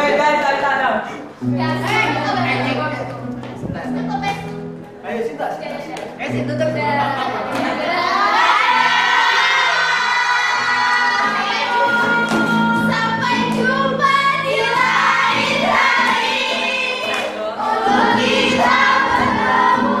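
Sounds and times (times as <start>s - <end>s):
group of voices singing: 7.3s - 20.0s.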